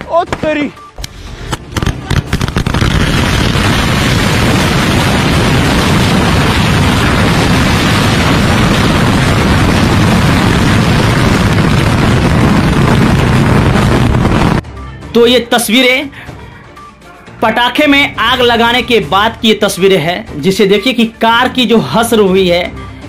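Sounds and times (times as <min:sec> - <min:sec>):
firecrackers crackling: 0:00.0 - 0:14.6
firecracker bangs: 0:01.6 - 0:14.6.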